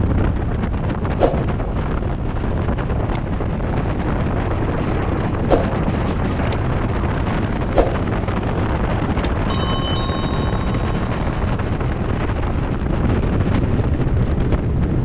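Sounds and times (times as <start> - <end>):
wind rushing on microphone: 0.0 - 15.0
sharp clicks: 9.1 - 9.4.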